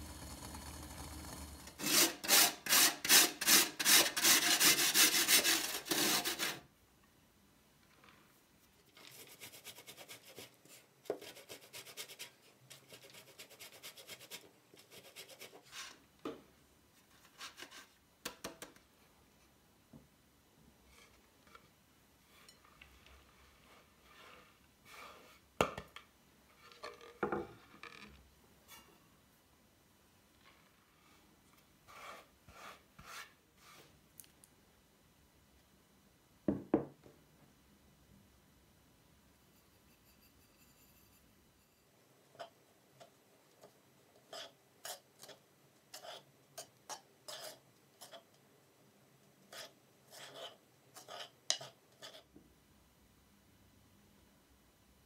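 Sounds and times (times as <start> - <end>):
metal spoon scraping dry mixture: 31.9 - 33.9, 39.6 - 48.4, 49.5 - 52.3.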